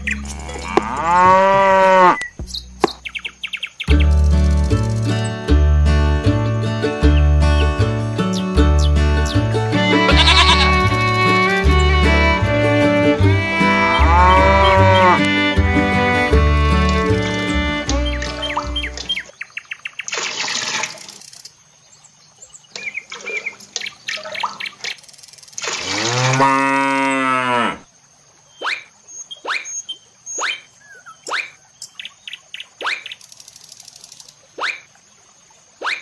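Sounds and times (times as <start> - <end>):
sharp bird chirps: 0.0 - 0.6, 2.1 - 5.4, 18.0 - 20.1, 28.5 - 34.9, 35.8 - 36.0
cow mooing: 0.2 - 2.2, 10.0 - 10.8, 13.2 - 17.8, 25.8 - 27.8
water splash: 16.2 - 21.4, 22.7 - 26.5.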